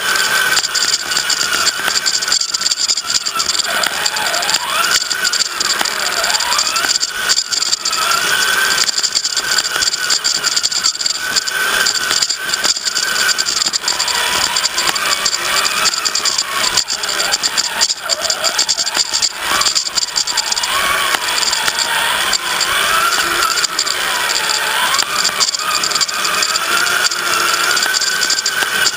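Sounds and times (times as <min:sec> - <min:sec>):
chassis rattling and clicking: 0:00.0 - 0:28.9
toy car motor whining: 0:00.0 - 0:28.9.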